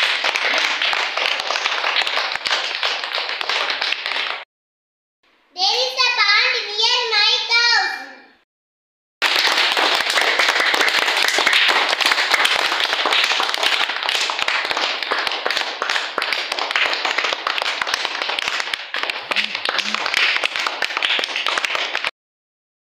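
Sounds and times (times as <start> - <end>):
children clapping: 0.0 - 4.5, 9.2 - 22.1.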